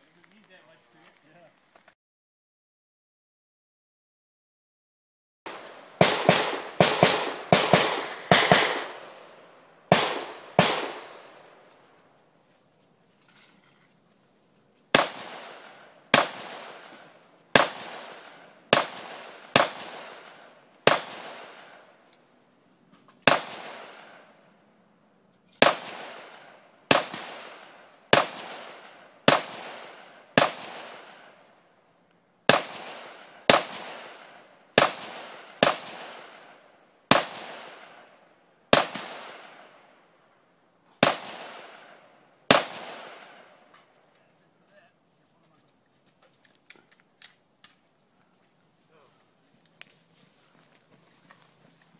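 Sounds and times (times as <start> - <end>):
rifle shots echoing: 5.5 - 11.8, 14.9 - 22.0, 23.2 - 24.5, 25.6 - 31.6, 32.4 - 39.9, 41.0 - 43.9.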